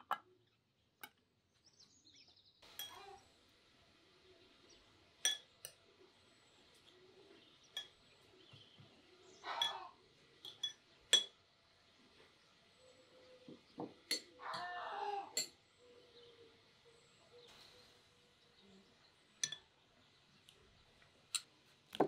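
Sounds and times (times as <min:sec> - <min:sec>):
glassware and cutlery clinking: 0:02.7 - 0:03.2, 0:05.2 - 0:05.8, 0:09.5 - 0:11.4, 0:14.1 - 0:14.8, 0:15.4 - 0:15.6.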